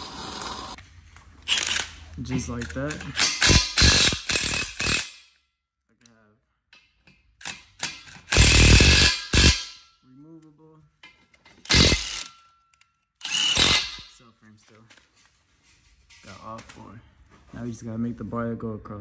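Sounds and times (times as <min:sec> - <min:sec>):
impact wrench hammering: 0:02.9 - 0:05.4, 0:06.8 - 0:09.9, 0:11.5 - 0:12.4, 0:13.2 - 0:14.2.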